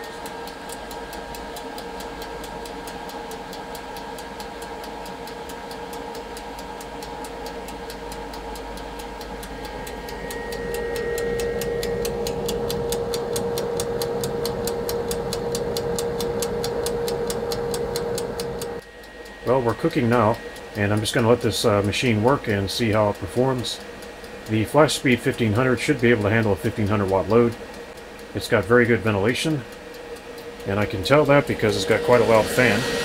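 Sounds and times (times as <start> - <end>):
cooling fan whirring: 0.0 - 33.0
fast even ticking: 0.0 - 33.0
steady whine: 0.0 - 33.0.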